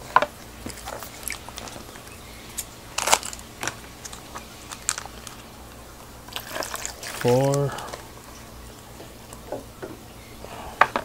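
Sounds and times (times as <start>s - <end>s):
plastic bag crinkling: 0.6s - 5.5s, 6.3s - 8.1s.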